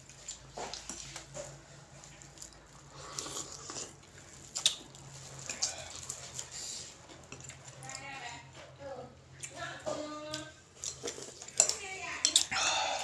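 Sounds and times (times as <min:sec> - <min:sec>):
chewing: 0:00.0 - 0:08.1, 0:09.3 - 0:13.0
slurping: 0:02.7 - 0:06.9.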